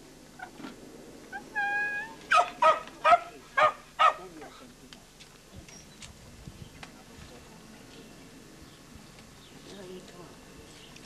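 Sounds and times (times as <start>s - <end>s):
pet animal high whine: 1.3s - 2.7s.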